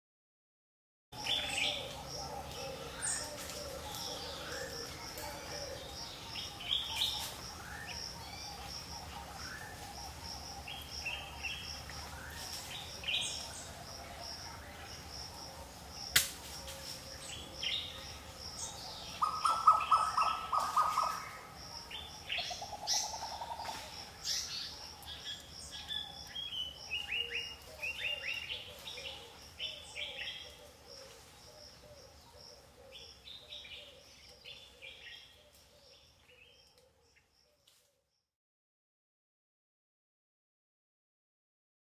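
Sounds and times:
birds chirping and calling: 1.2 - 15.1, 17.2 - 37.3.

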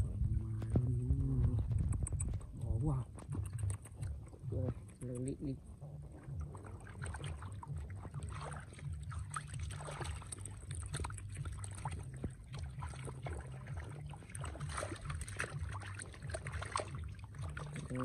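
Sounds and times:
hands splashing in muddy water: 6.4 - 18.0.

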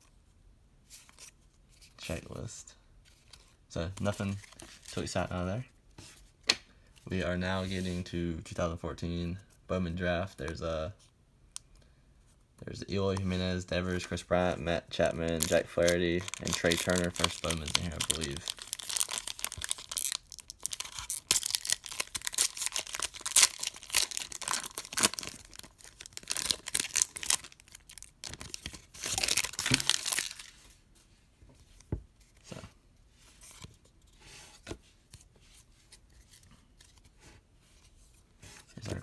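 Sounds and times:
foil wrapper crinkling and tearing: 15.3 - 30.6.

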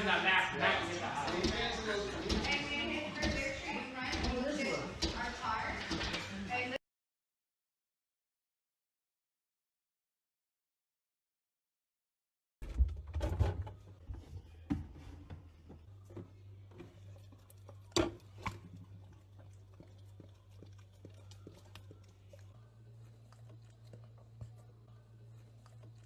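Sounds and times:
dog chewing food: 16.8 - 26.0.

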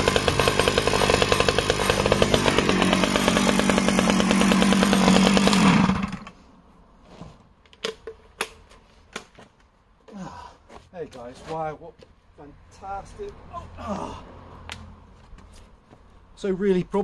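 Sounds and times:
chainsaw engine running: 0.0 - 6.4.

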